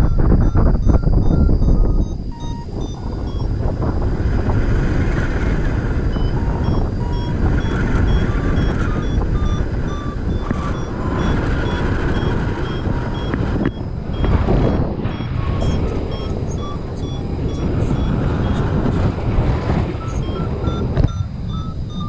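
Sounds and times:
variometer rapid beeps: 0:00.0 - 0:22.0
wind buffeting microphone: 0:00.0 - 0:22.0.

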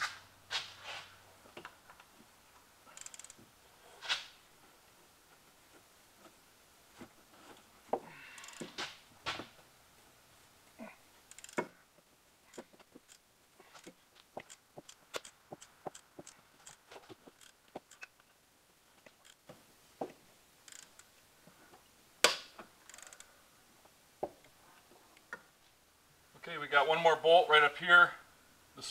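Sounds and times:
ratchet wrench clicking: 0:02.9 - 0:03.4, 0:11.3 - 0:11.7, 0:17.4 - 0:18.1, 0:20.7 - 0:21.1, 0:22.8 - 0:23.3.

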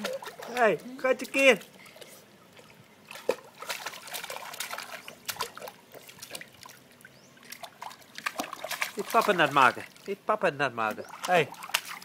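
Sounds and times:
baby slapping pool water: 0:00.0 - 0:12.0.

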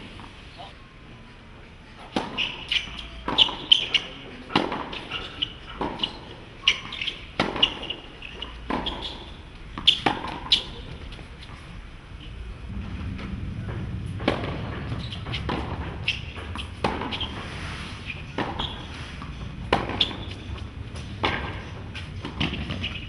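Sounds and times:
tennis ball struck by racket: 0:02.1 - 0:09.2, 0:09.8 - 0:10.8, 0:14.2 - 0:17.4, 0:18.3 - 0:23.0
ball bouncing on hard court: 0:02.2 - 0:10.7, 0:14.2 - 0:17.4, 0:18.3 - 0:23.0.

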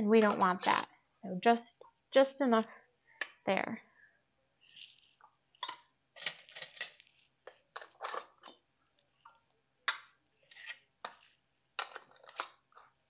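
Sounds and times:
metal lids clicking on glass jars: 0:00.2 - 0:00.8.

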